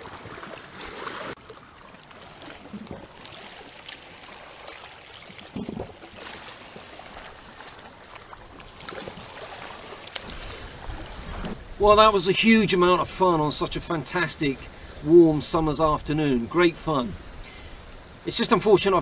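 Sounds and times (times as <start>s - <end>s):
water lapping against rocks: 0.0s - 19.0s.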